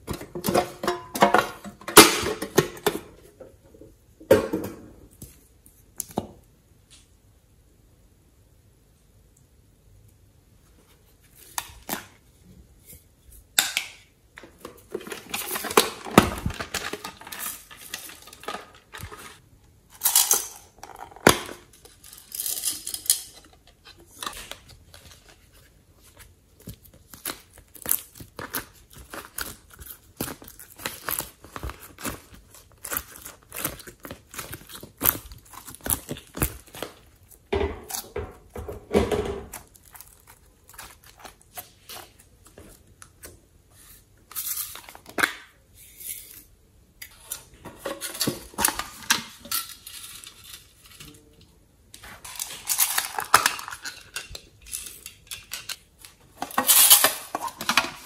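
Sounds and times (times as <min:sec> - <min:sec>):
crinkly tearing: 0:24.0 - 0:38.2, 0:39.5 - 0:42.3
sticky squishing of slime: 0:26.5 - 0:38.0, 0:39.5 - 0:43.3.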